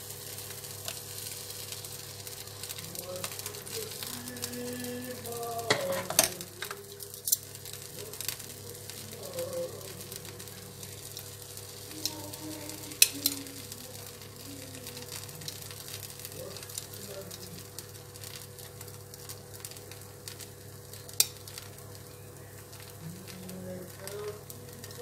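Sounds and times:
batter sizzling in pan: 0:00.0 - 0:25.0
metal utensils clicking on pan: 0:05.6 - 0:07.5, 0:12.9 - 0:13.7, 0:21.0 - 0:21.7.

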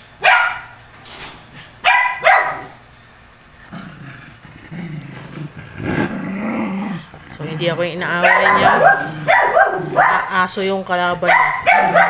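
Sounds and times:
dog barking sharply: 0:00.2 - 0:00.8, 0:01.8 - 0:02.8, 0:08.2 - 0:10.3, 0:11.3 - 0:12.0
dog growling: 0:03.5 - 0:10.4.

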